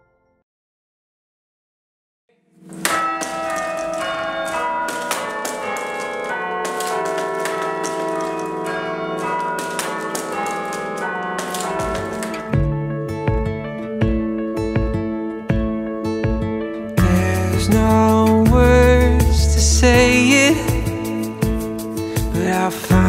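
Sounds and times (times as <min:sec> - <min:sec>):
church bells chiming: 0:02.7 - 0:14.5.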